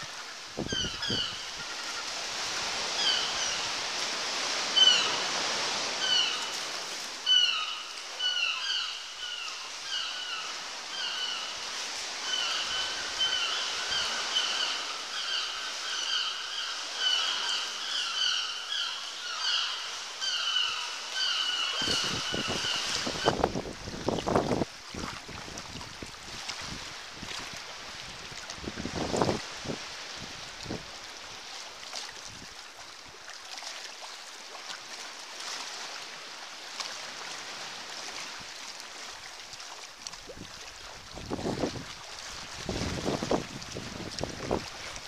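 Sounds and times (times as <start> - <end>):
seabirds calling: 0.0 - 3.9, 4.6 - 6.6, 7.2 - 23.5.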